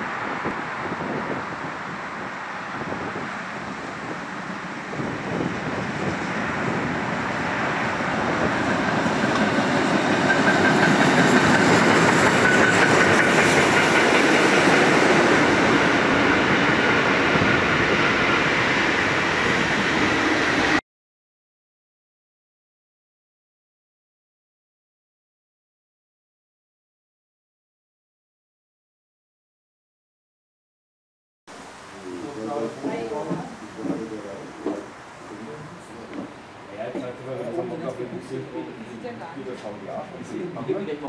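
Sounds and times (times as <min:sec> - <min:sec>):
steam train passing: 0:00.0 - 0:20.8, 0:31.5 - 0:41.0.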